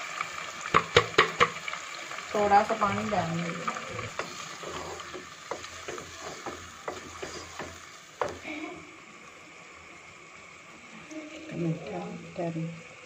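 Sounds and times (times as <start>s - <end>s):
gravy sizzling: 0.0s - 13.0s
wooden spoon knocking and scraping pot: 0.8s - 1.6s, 3.9s - 8.5s.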